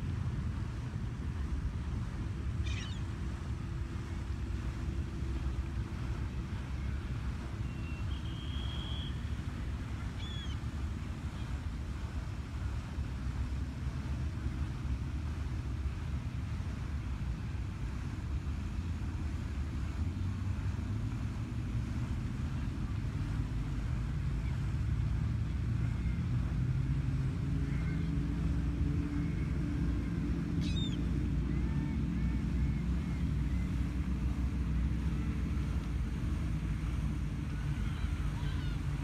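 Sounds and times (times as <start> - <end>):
distant engine rumble: 0.0 - 39.0
faint high bird calls: 2.6 - 3.1, 7.6 - 9.3, 10.1 - 10.6, 30.5 - 33.7.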